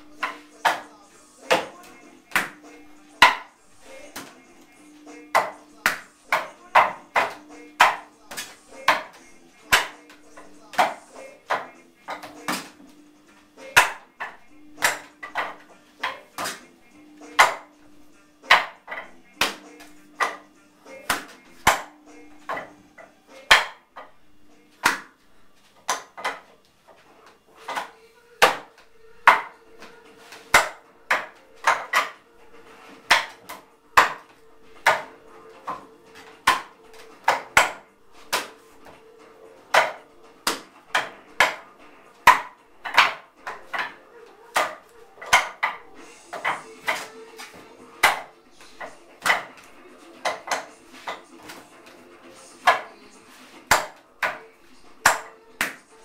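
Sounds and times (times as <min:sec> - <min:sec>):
wooden dummy knocks and clacks: 0:30.5 - 0:32.2, 0:39.7 - 0:41.7, 0:42.3 - 0:44.0.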